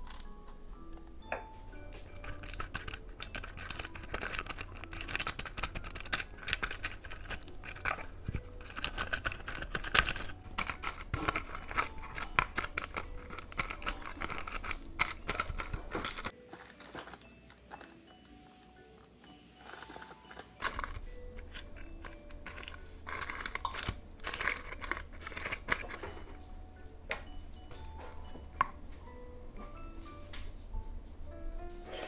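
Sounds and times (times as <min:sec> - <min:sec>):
clicks and scrapes of baking tools: 0:02.0 - 0:18.0, 0:19.1 - 0:26.4.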